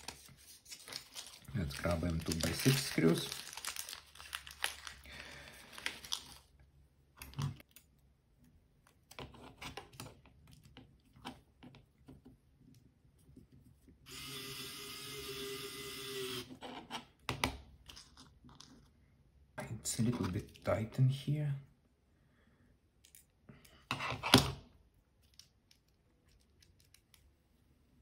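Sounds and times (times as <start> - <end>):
plastic bag crinkling: 0.0 - 6.5
electric screwdriver whining: 14.1 - 16.5.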